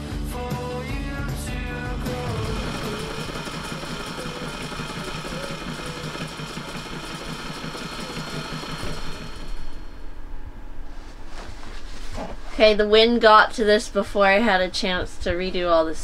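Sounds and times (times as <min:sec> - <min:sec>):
sewing machine stitching: 0:02.2 - 0:09.9.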